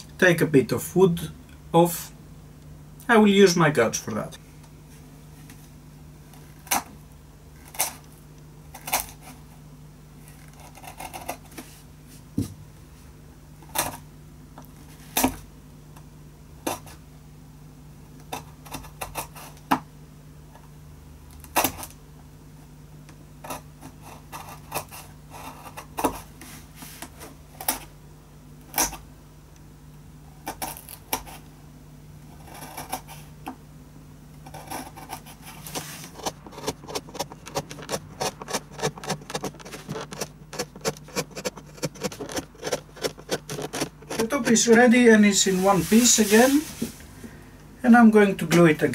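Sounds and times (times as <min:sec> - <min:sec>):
light scraping of wood: 0:35.6 - 0:47.1
gouge cutting wood clicks: 0:36.2 - 0:44.3.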